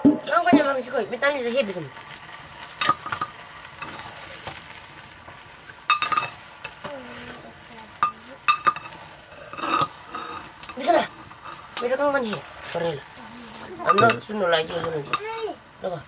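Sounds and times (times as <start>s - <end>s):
wooden stick scraping metal pot: 5.9s - 15.2s.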